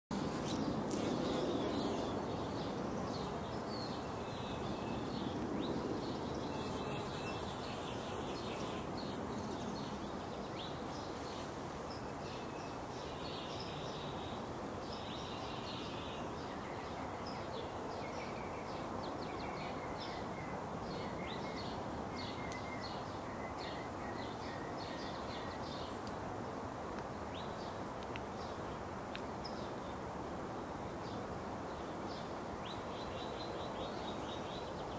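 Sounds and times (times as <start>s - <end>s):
small birds chirping: 0.1s - 26.2s
outdoor background hiss: 0.1s - 34.9s.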